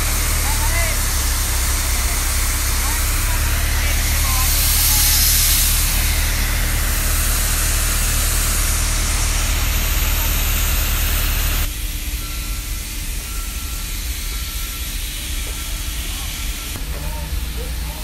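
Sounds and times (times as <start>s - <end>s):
heavy machinery engine hum: 0.0s - 18.0s
loud hiss: 0.0s - 18.0s
faint high whistle: 12.1s - 16.6s.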